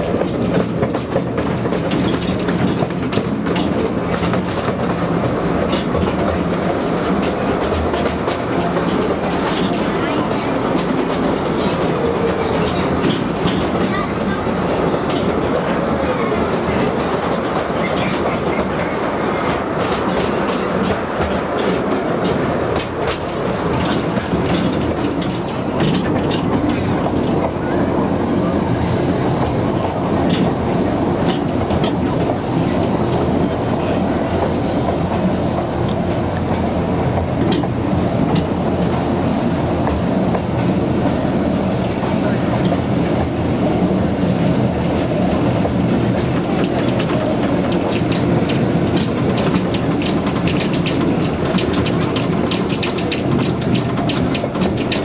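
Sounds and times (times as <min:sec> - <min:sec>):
train wheels rumbling on rail: 0:00.0 - 0:55.0
sharp clicks and clatter: 0:45.6 - 0:55.0.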